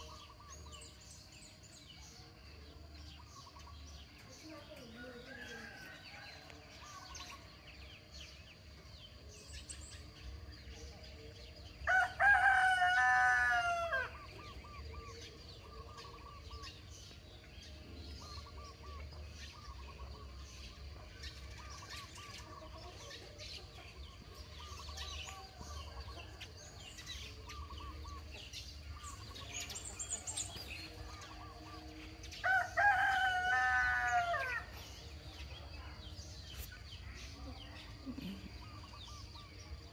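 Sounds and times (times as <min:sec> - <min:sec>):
rooster crowing: 0:11.9 - 0:14.2, 0:32.4 - 0:34.7.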